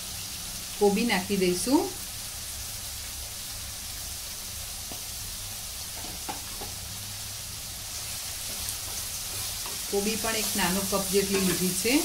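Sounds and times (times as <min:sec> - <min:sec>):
vegetables sizzling in a wok: 0:00.0 - 0:12.0
spatula knocking against pan: 0:06.0 - 0:06.8.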